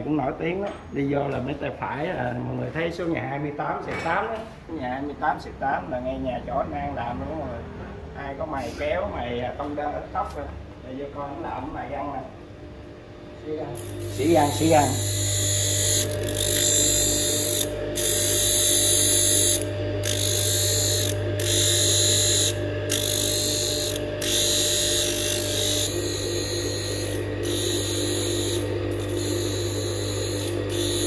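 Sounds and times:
grinding machine humming: 11.0 - 31.0
high hiss of blade grinding: 13.8 - 31.0.

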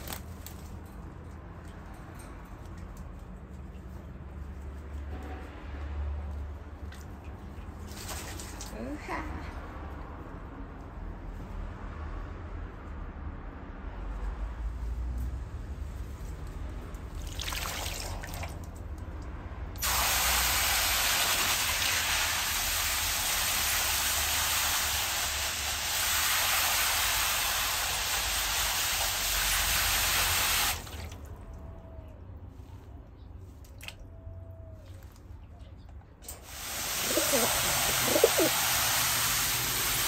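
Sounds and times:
hose spraying and splashing water: 7.7 - 9.0, 17.1 - 18.8, 19.8 - 31.3, 36.2 - 40.0.

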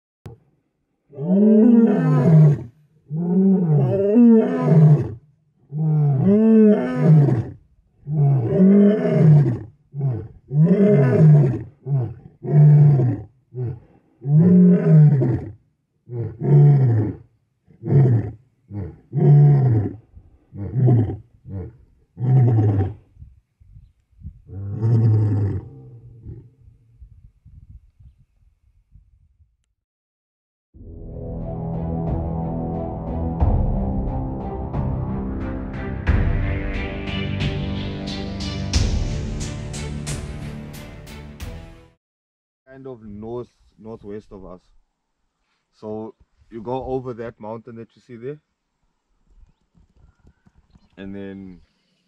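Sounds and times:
lion grunting calls: 1.1 - 23.0
lion roaring: 1.1 - 23.0, 24.5 - 26.6.

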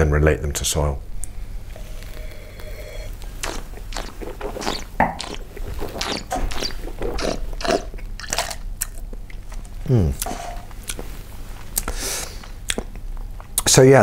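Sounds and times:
man slurping wine: 1.6 - 8.6
spitting into paper cup: 1.8 - 7.9.

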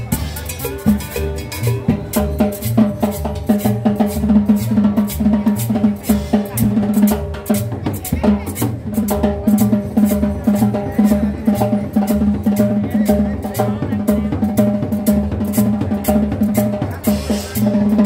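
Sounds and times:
drums and percussion: 0.0 - 18.0
plucked upright bass: 0.0 - 18.0.

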